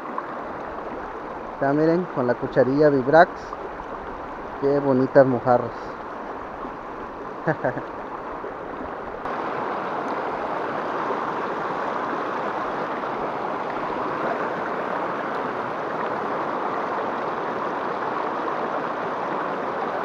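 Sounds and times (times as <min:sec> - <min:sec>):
river rapids rushing over rocks: 0:06.0 - 0:20.0.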